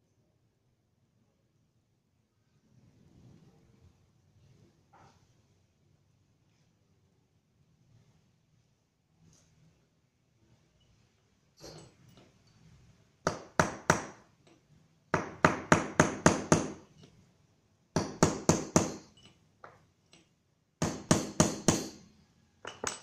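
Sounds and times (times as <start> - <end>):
hammer striking metal: 18.0 - 19.3, 20.8 - 22.1.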